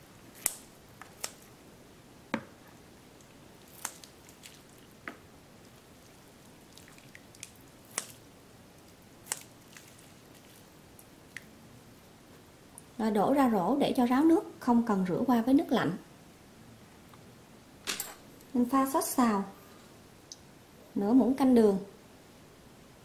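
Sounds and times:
scissors snipping noodles: 7.9 - 8.2.

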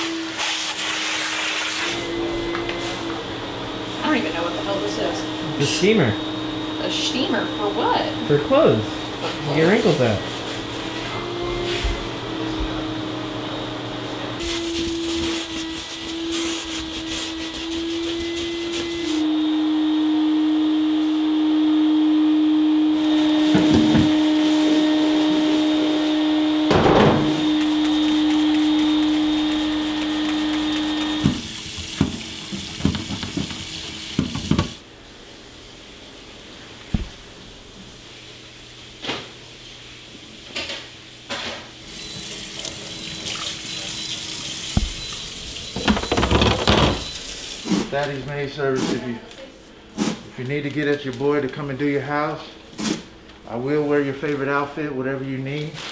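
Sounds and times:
vacuum cleaner running: 0.0 - 50.7
steady machine hum: 2.0 - 14.5
glass shelf being scrubbed: 14.4 - 19.2
tap running into sink: 27.0 - 34.8, 36.9 - 37.2, 42.1 - 47.8.

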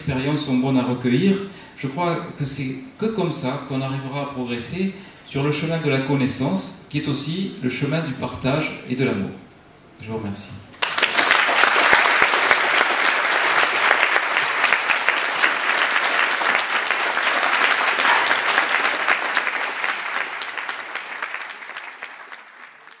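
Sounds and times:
large audience applauding: 10.8 - 23.0.

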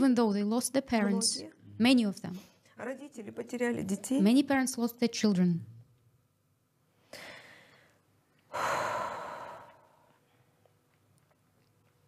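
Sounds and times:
woman breathing out heavily: 7.1 - 10.1.

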